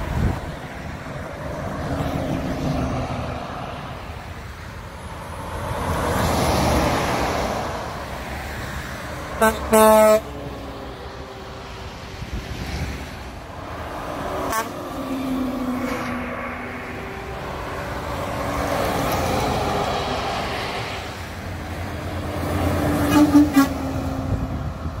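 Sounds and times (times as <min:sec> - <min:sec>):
heavy trucks passing: 0:00.0 - 0:25.0
low horn tone: 0:09.4 - 0:10.3, 0:14.4 - 0:16.2, 0:23.0 - 0:24.0
truck air horn blasts: 0:09.4 - 0:10.3, 0:14.4 - 0:14.9, 0:23.0 - 0:24.0.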